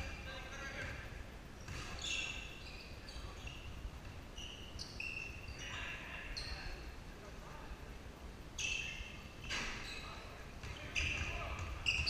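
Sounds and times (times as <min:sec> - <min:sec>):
shoes squeaking on hardwood floor: 0:08.6 - 0:12.0.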